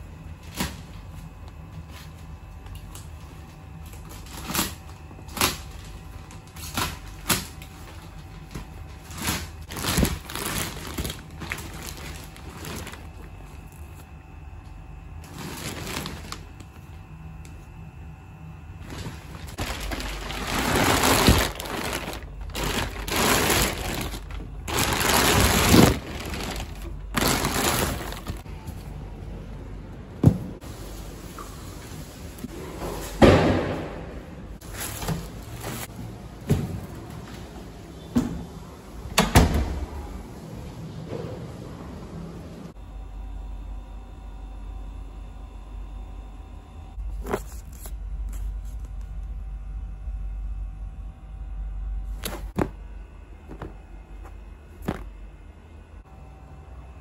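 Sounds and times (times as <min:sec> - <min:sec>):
plastic wrap crinkling: 0:03.9 - 0:13.6, 0:15.2 - 0:16.8, 0:18.8 - 0:28.5.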